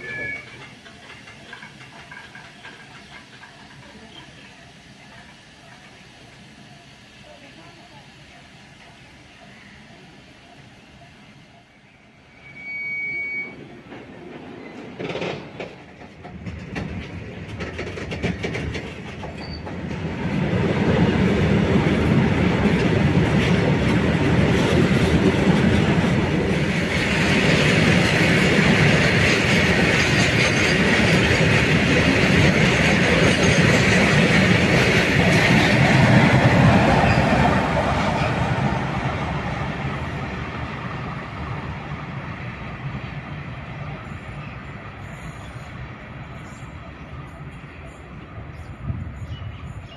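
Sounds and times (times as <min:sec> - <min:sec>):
freight train wheels on rails: 0:00.0 - 0:49.9
high wheel screech: 0:12.2 - 0:13.6.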